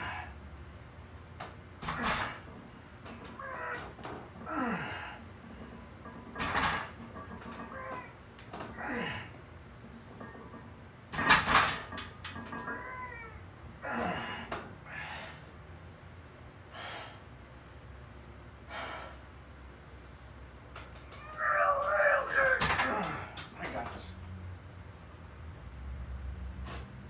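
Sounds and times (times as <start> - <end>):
person groaning with strain: 4.4 - 5.2, 8.8 - 9.3, 13.8 - 14.5.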